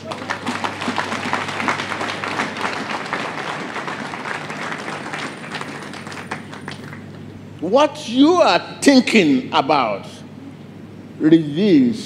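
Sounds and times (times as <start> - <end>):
congregation applauding: 0.0 - 7.4.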